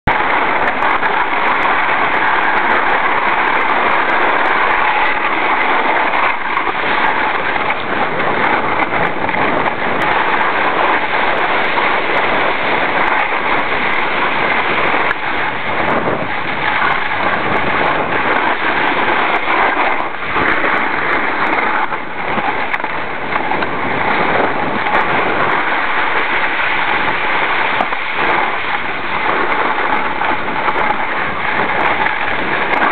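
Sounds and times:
snowboard scraping on snow: 0.1s - 32.9s.

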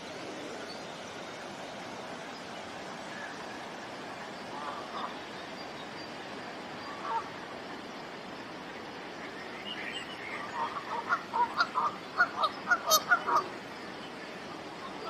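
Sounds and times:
rushing water: 0.0s - 15.0s
geese honking: 10.6s - 13.5s.

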